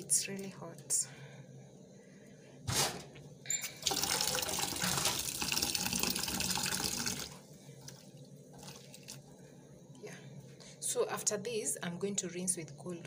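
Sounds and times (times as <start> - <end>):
tap water running into bowl: 3.8 - 7.4.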